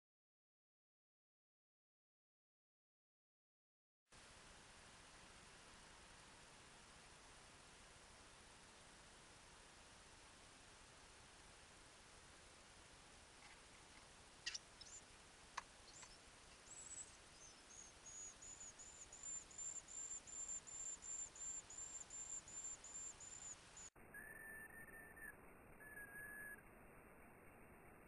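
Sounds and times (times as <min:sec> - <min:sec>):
nestling birds cheeping: 0:14.4 - 0:26.6.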